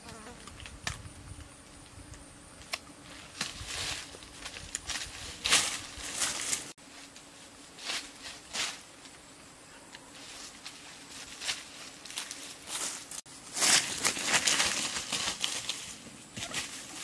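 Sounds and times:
footsteps in vegetation: 0:02.6 - 0:17.0
rustling in leaf litter: 0:03.0 - 0:09.1, 0:10.1 - 0:17.0.

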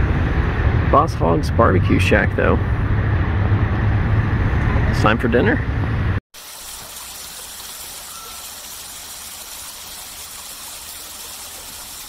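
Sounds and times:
rushing water: 0:06.4 - 0:12.0.

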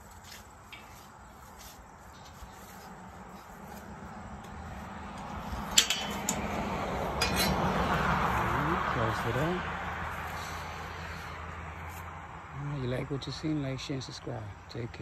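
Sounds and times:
background noise: 0:00.0 - 0:15.0
metal gate clinking: 0:05.4 - 0:08.0.

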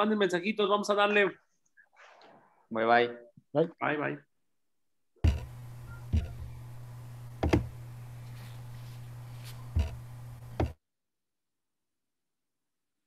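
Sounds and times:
knocks and thumps: 0:05.2 - 0:06.6, 0:07.4 - 0:07.8, 0:09.7 - 0:10.8
steady low hum: 0:05.2 - 0:10.8.

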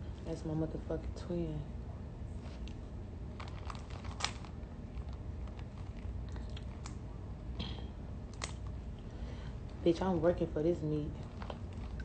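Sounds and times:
low room hum: 0:00.0 - 0:12.0
seafood shells cracking: 0:03.4 - 0:07.0.

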